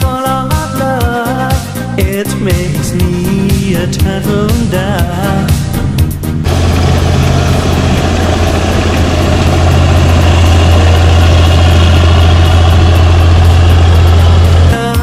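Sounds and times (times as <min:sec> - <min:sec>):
diesel engine droning: 0:02.5 - 0:15.0
machinery working: 0:03.0 - 0:15.0.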